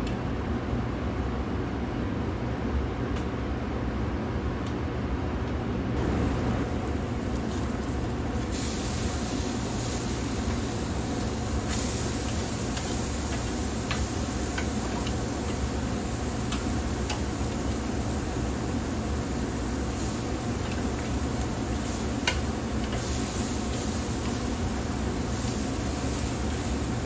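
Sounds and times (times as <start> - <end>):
steady low hum: 0.0 - 27.0
meat sizzling on a grill: 6.0 - 27.0.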